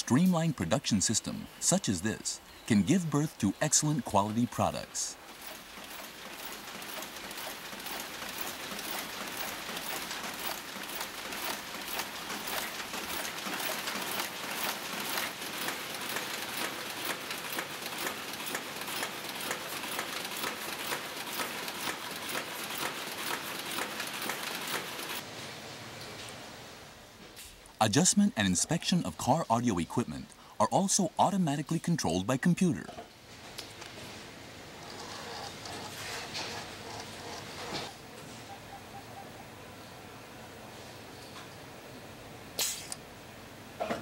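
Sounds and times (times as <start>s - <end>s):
machines rattling with rapid clicks: 3.2s - 25.2s, 34.7s - 37.9s.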